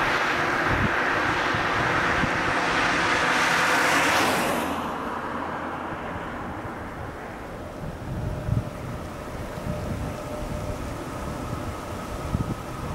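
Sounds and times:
wind buffeting microphone: 0:00.0 - 0:03.6, 0:05.9 - 0:12.9
car driving past: 0:00.0 - 0:12.3.

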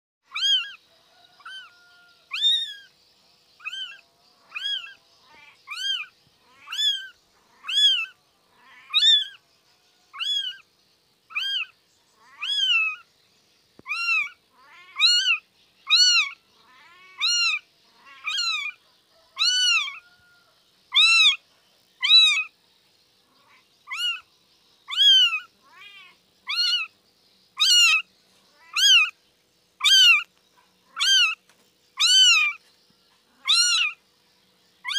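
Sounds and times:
kitten mewing: 0:12.4 - 0:13.0, 0:13.9 - 0:18.8, 0:22.0 - 0:22.5, 0:23.9 - 0:24.2, 0:24.9 - 0:26.9, 0:27.6 - 0:28.0, 0:28.7 - 0:29.1, 0:29.8 - 0:30.2, 0:31.0 - 0:31.4, 0:32.0 - 0:32.6, 0:33.4 - 0:34.0.

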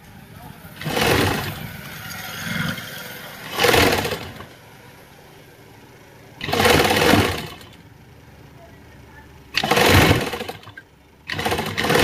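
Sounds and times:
sewing machine stitching: 0:00.8 - 0:01.7, 0:03.4 - 0:04.5, 0:06.4 - 0:07.8, 0:09.6 - 0:12.0.

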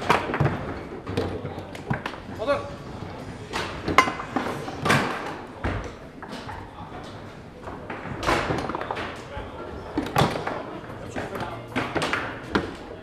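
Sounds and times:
foosball balls knocking: 0:00.0 - 0:02.3, 0:03.4 - 0:13.0.

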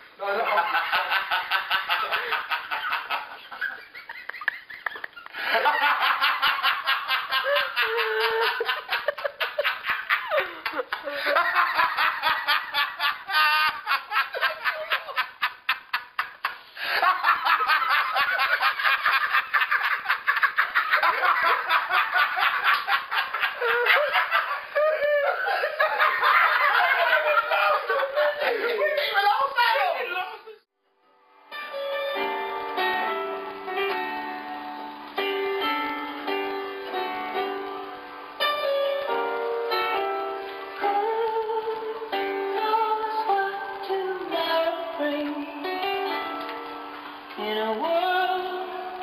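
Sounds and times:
men laughing: 0:00.2 - 0:29.5.

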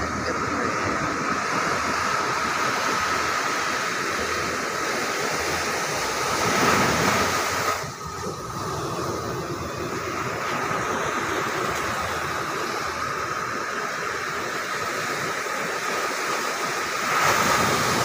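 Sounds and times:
ocean surf breaking on sand: 0:00.0 - 0:18.0.

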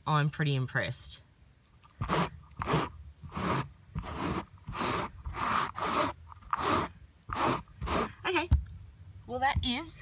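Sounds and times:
rubbing strokes on upholstery: 0:02.0 - 0:08.1.

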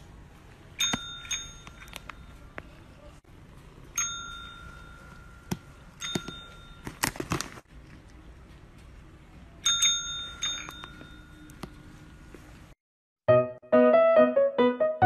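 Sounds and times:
desk call bell ringing: 0:00.8 - 0:02.4, 0:04.0 - 0:06.9, 0:09.6 - 0:11.6.

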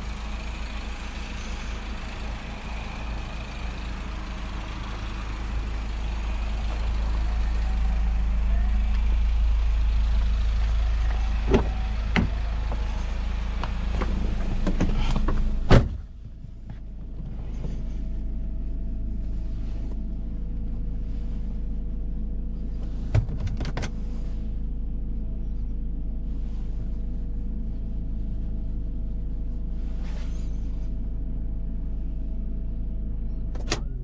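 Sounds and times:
outside hiss: 0:00.0 - 0:15.6
car engine low hum: 0:00.0 - 0:34.0.

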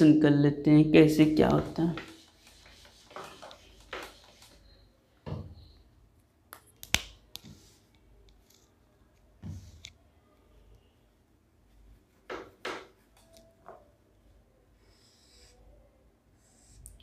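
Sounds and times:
hand rubbing whiteboard: 0:01.2 - 0:04.8.

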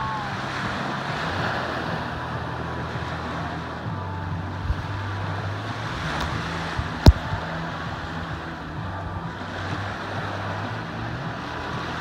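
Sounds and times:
low engine-like hum: 0:00.0 - 0:12.0.

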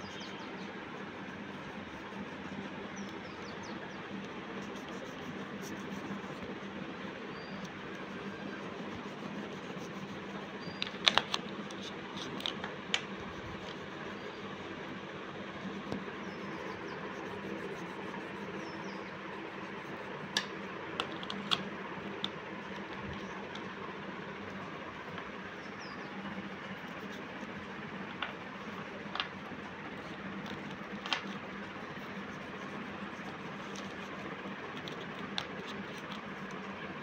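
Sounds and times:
background hiss and hum: 0:00.0 - 0:37.0
light clicks of pastels and tray: 0:07.5 - 0:14.0, 0:19.6 - 0:23.8, 0:28.1 - 0:36.8.

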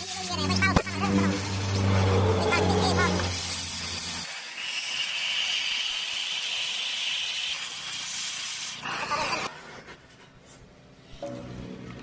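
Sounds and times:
cutting torch hissing: 0:00.0 - 0:09.5.

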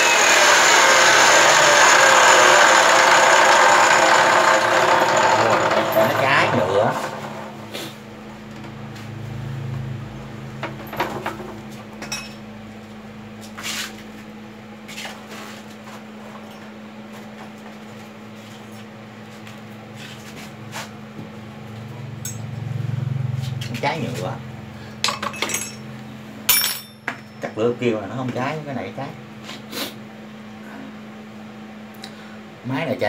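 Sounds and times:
metal clanks and knocks: 0:10.6 - 0:12.4.

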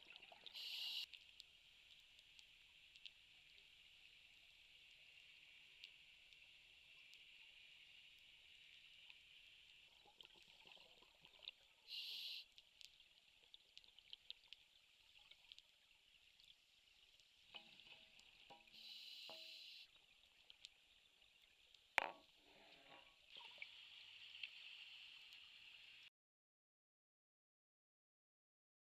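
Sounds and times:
underwater crackle: 0:00.0 - 0:26.1
short hiss: 0:00.6 - 0:01.1, 0:11.9 - 0:12.5, 0:18.8 - 0:19.8.

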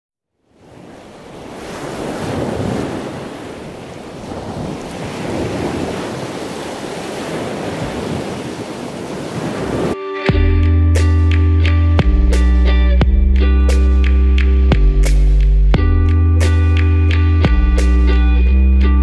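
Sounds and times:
wind: 0:00.3 - 0:10.0
sea waves rushing: 0:00.4 - 0:10.0
plucked guitar music: 0:10.0 - 0:19.0.

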